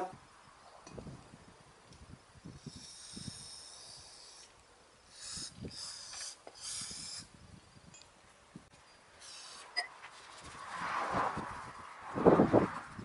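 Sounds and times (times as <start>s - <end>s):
aerosol spray can hissing: 2.6s - 4.5s, 5.1s - 7.3s.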